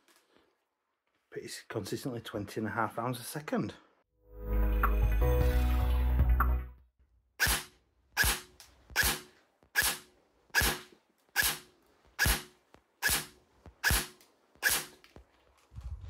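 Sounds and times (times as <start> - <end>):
airsoft gun firing single shots: 7.4 - 15.0.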